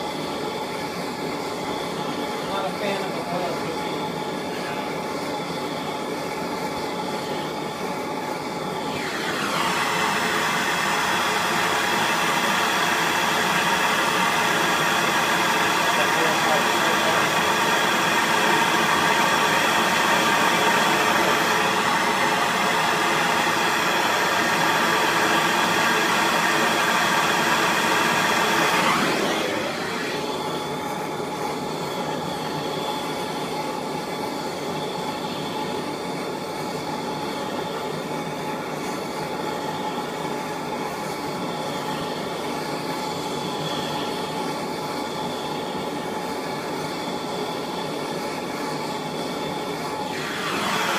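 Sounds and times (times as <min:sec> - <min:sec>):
mechanical hum with faint tones: 0:00.0 - 0:50.6
torch hissing: 0:00.0 - 0:50.9.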